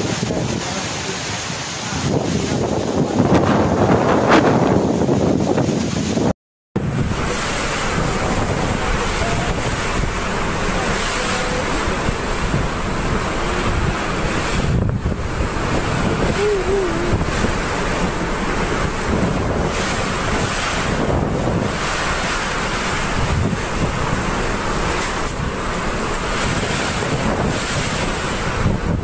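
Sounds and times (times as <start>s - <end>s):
heavy rain: 0.0s - 29.0s
strong wind gusts: 0.0s - 29.0s
wind buffeting microphone: 0.0s - 29.0s.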